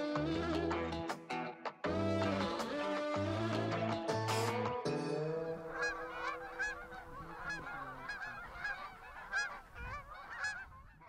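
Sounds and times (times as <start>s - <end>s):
guitar music: 0.0s - 7.5s
geese honking: 5.3s - 11.0s.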